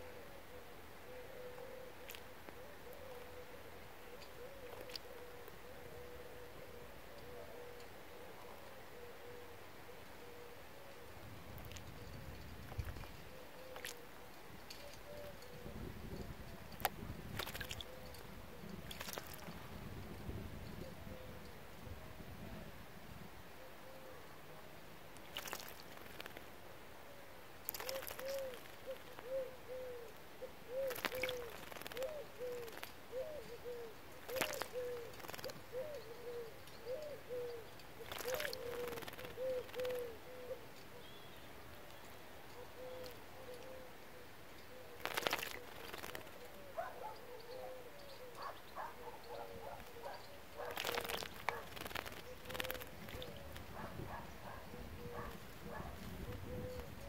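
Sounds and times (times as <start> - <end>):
bird splashing in water: 17.3 - 17.8, 18.9 - 19.6, 25.2 - 26.4, 27.7 - 29.2, 30.9 - 32.0, 38.0 - 40.0, 45.0 - 46.4, 50.6 - 53.6
wing flutters: 17.3 - 19.7, 25.2 - 26.5, 27.7 - 29.4, 30.7 - 33.0, 34.2 - 35.8, 38.0 - 40.2, 45.0 - 46.6, 50.6 - 54.6.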